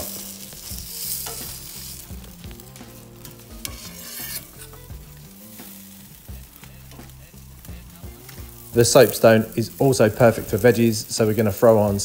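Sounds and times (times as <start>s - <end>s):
metal spatula and tongs scraping: 0.0s - 2.2s, 2.8s - 7.4s
fish sizzling on hot stone: 0.0s - 12.0s.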